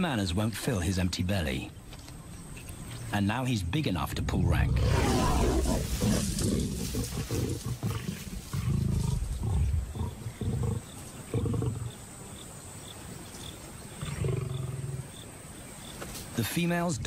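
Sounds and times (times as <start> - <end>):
lions growling and snarling: 4.1 - 12.1, 13.9 - 15.2.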